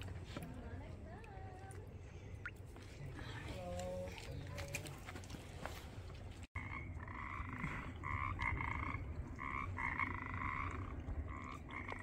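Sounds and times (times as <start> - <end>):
frogs croaking: 6.6 - 12.0.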